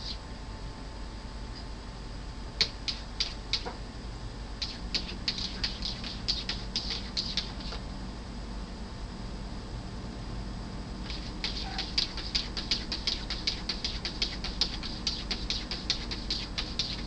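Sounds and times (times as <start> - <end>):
cat paws squeaking on glass: 0.0 - 0.2, 4.6 - 7.8, 11.1 - 17.0.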